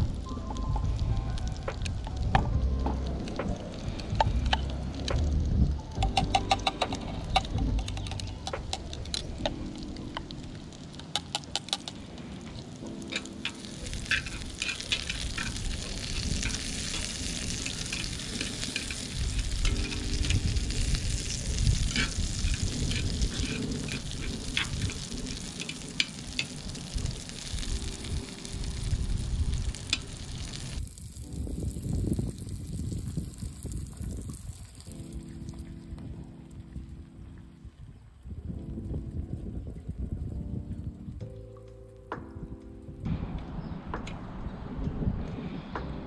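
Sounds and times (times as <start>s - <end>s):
chopsticks tapping pan: 6.0s - 9.6s, 11.1s - 12.0s
meat sizzling in skillet: 8.0s - 35.4s
chopsticks clicking against cup: 11.1s - 12.0s.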